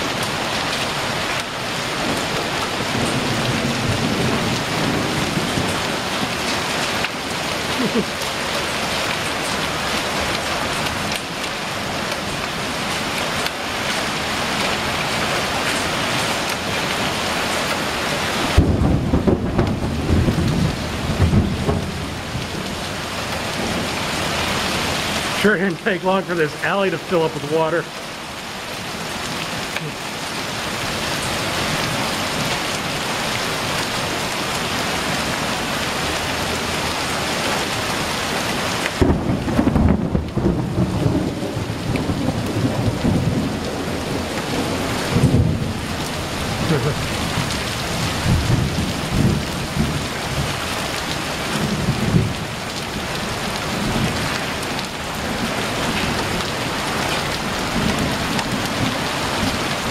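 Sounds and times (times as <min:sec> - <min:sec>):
heavy rain pouring: 0:00.0 - 0:59.9
thunder rumbling: 0:02.8 - 0:06.7, 0:18.4 - 0:27.8, 0:38.9 - 0:50.6.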